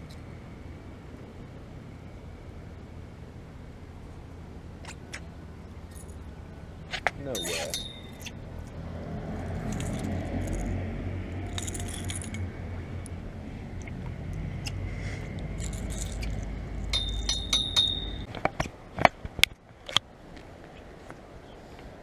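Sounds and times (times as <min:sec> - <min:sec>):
metal gear clinking and jingling: 0:07.3 - 0:08.3, 0:09.6 - 0:10.7, 0:11.4 - 0:12.5, 0:15.6 - 0:18.2.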